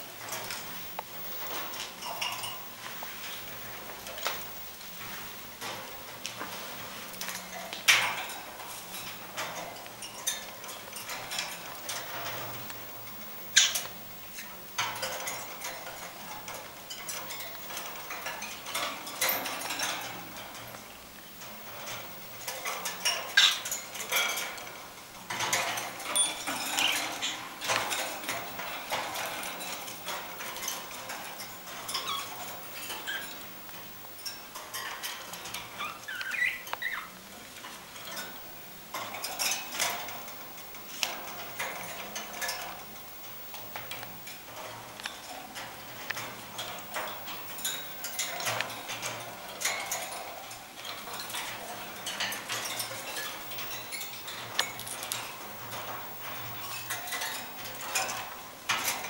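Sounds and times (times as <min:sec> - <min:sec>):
budgerigars chattering and chirping: 0:35.8 - 0:37.1.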